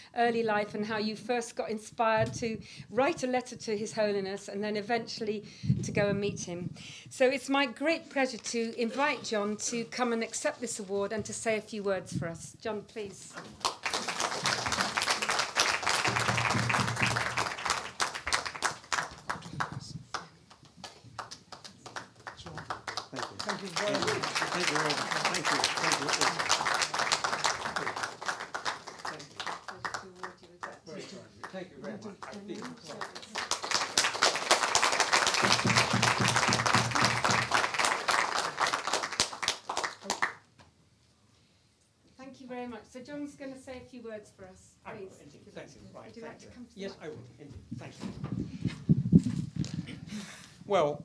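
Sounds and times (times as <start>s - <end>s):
audience applause: 13.4s - 30.4s, 32.2s - 40.4s.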